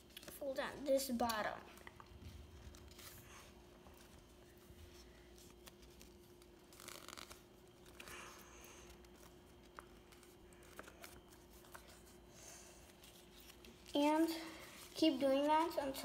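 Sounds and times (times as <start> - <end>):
faint steady hum: 0.0 - 16.0
paper rustling: 1.8 - 16.0.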